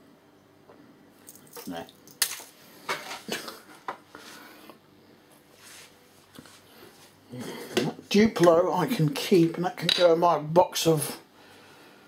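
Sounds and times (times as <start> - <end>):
objects knocking and rustling: 1.3 - 4.1.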